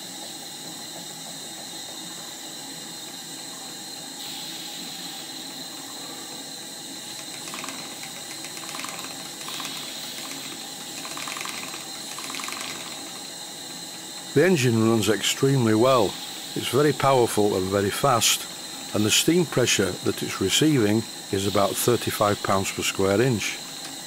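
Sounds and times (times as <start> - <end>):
steam hissing: 0.0 - 24.0
steam engine mechanical ticking: 7.1 - 13.3.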